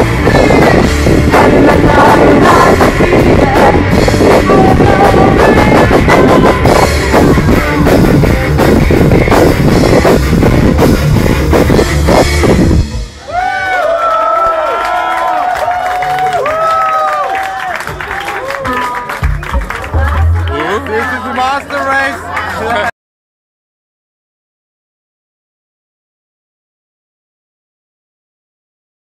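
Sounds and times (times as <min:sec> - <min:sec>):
woman singing lead: 0:00.0 - 0:08.0
electric guitar: 0:00.0 - 0:13.2
drum kit: 0:00.0 - 0:13.8, 0:17.8 - 0:21.2.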